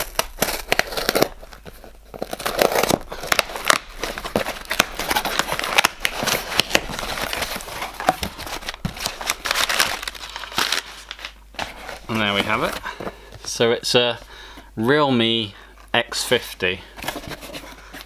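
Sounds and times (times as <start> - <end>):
paper packing rustling: 0.0 - 13.4.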